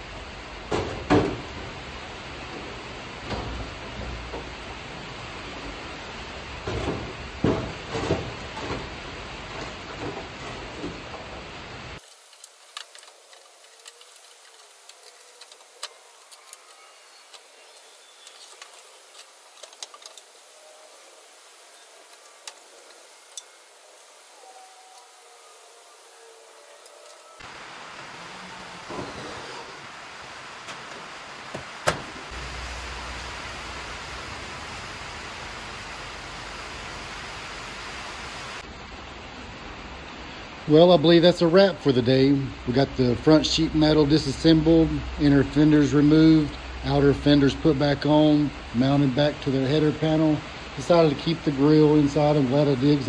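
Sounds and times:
rushing noise: 0:00.0 - 0:40.9
steady rushing noise: 0:27.0 - 0:40.9
low hum: 0:32.0 - 0:38.6.

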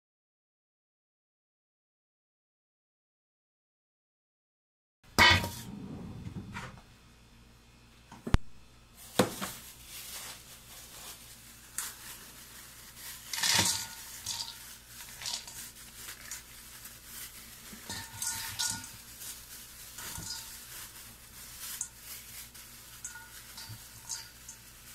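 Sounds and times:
rice rustling into steel bowl: 0:05.2 - 0:05.8, 0:08.9 - 0:24.9.

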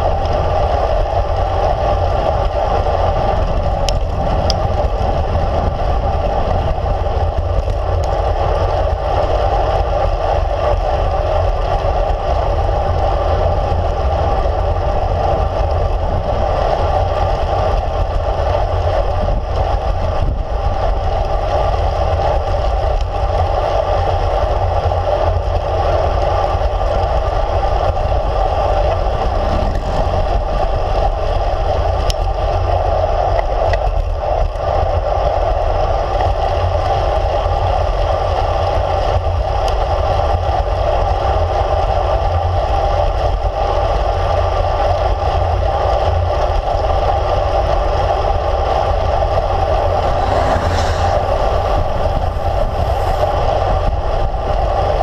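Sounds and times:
wind rush: 0:00.0 - 0:33.3, 0:47.2 - 0:55.0
bike road rumble: 0:00.0 - 0:55.0
mid-pitched hum: 0:27.3 - 0:32.2, 0:47.8 - 0:55.0.

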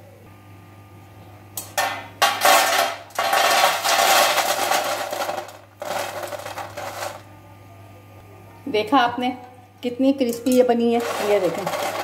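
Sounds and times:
fried peanuts rattling onto platter: 0:02.2 - 0:07.2, 0:11.0 - 0:12.0.

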